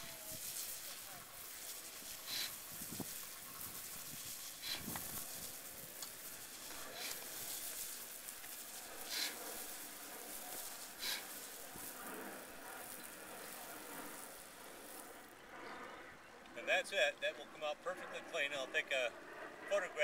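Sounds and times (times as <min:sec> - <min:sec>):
spray wand hissing on roof tiles: 0:00.0 - 0:15.3.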